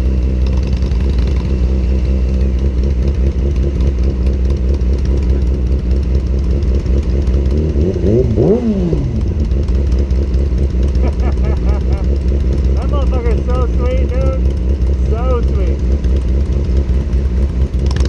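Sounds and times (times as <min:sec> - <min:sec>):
motorcycle engine revving: 0:00.0 - 0:18.0
motorcycle engines idling: 0:00.0 - 0:18.0.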